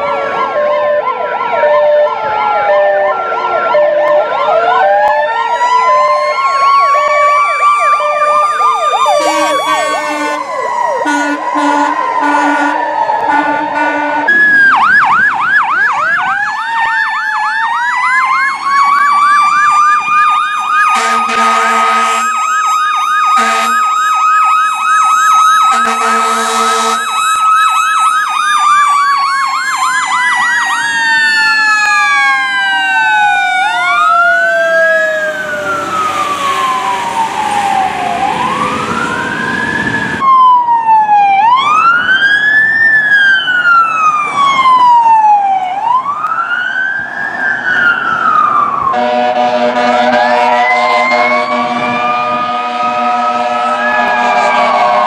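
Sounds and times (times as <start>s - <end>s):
fire engine siren yelp and wail: 0.0s - 55.0s
second siren wailing: 0.0s - 55.0s
air horn blasts: 9.0s - 14.4s, 20.9s - 22.4s, 23.4s - 23.9s, 25.7s - 27.1s, 48.9s - 55.0s.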